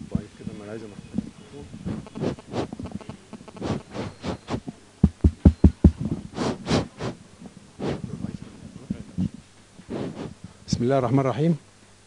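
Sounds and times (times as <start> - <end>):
microphone handling noise: 0.9 - 10.6
microphone tapped: 1.0 - 6.3.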